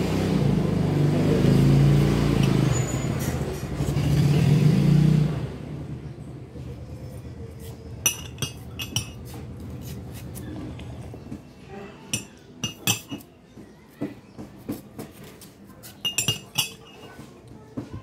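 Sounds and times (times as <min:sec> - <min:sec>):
metal spoon clinking glass mug: 0:08.0 - 0:09.2, 0:12.2 - 0:13.2, 0:16.0 - 0:17.1.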